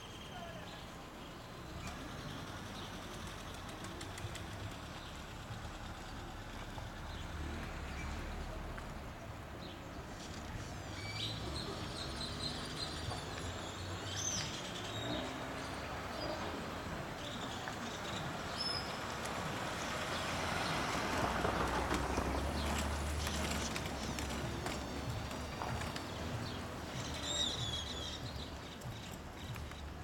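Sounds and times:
traffic rumble: 0.0 - 30.0
birds chirping: 22.6 - 30.0.

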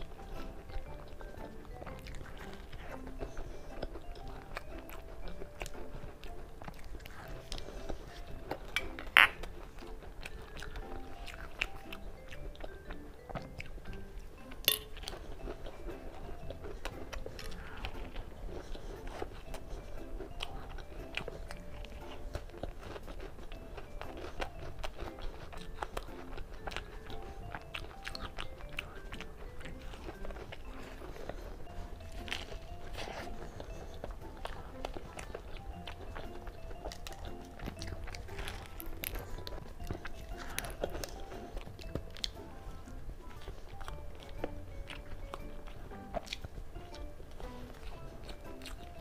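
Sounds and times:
chewing and crunching: 0.0 - 49.0
soft background music: 0.0 - 49.0.

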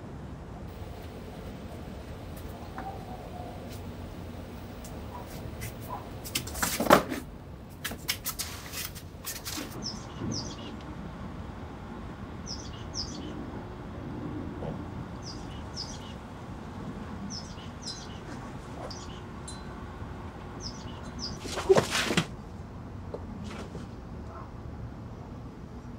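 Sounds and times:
faint background hum: 0.0 - 25.9
small bird chirping: 9.8 - 10.8, 12.4 - 13.4, 15.2 - 16.2, 17.2 - 19.6, 20.6 - 21.4.

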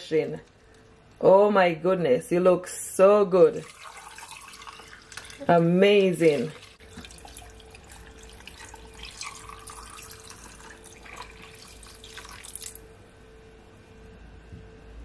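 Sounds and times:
lemonade pouring into glass of ice: 3.6 - 5.5, 6.2 - 12.8
drips: 3.6 - 12.8.

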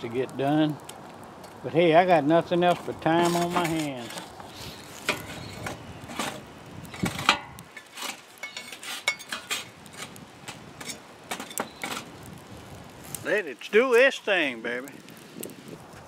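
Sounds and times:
metal chimney set on metal pan: 2.3 - 12.1
metal tongs clinking and scraping: 2.7 - 4.2, 5.0 - 6.4, 7.0 - 10.1.

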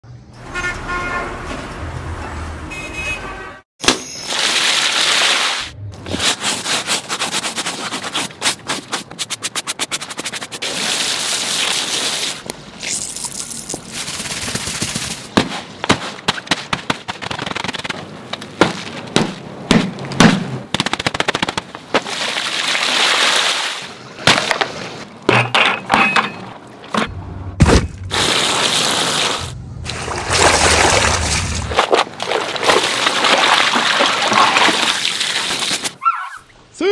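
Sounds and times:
rushing water: 22.0 - 24.0, 28.2 - 36.0
wet squelching: 28.1 - 36.4
wet slaps of scrubbing: 29.9 - 36.0.

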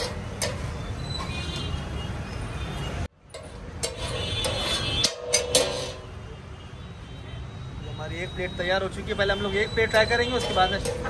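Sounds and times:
metal spatula scraping iron griddle: 0.0 - 1.4, 3.3 - 6.2, 10.2 - 11.0
street traffic rumble: 0.0 - 11.0.

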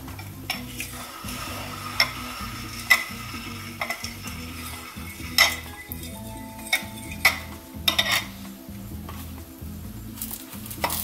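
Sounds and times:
faint sizzling hiss: 0.0 - 11.0
metal utensil clinking on glass: 3.8 - 8.4.

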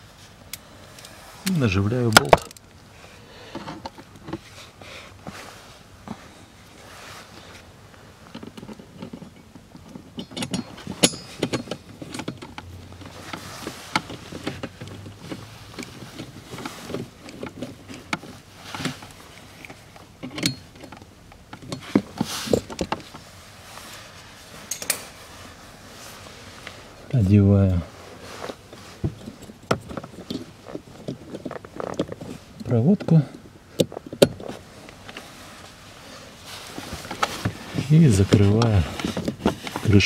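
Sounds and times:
hand tool clicks and knocks: 8.3 - 18.9, 19.6 - 23.1, 24.7 - 25.2.

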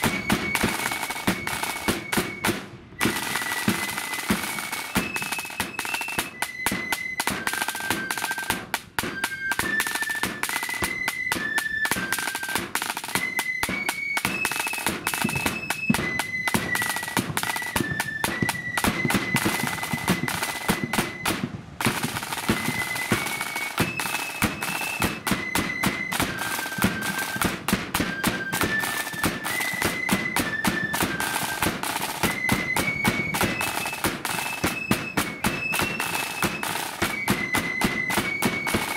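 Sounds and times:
flutes playing a march: 0.0 - 38.9
rattling snare drums: 0.0 - 38.9.

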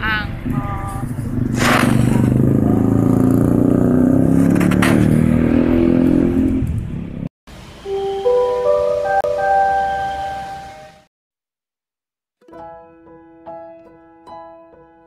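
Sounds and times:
vehicle engine accelerating: 0.8 - 7.3.

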